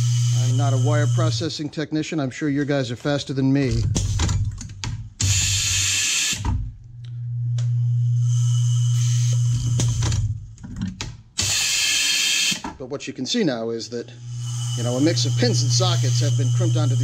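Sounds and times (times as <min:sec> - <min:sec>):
vibratory bowl humming: 0:00.0 - 0:01.5, 0:06.8 - 0:10.4, 0:14.0 - 0:17.0.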